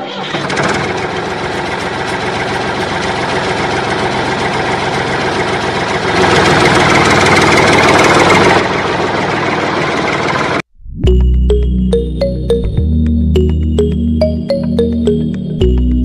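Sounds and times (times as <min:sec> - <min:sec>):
tractor engine idling: 0:00.0 - 0:10.7.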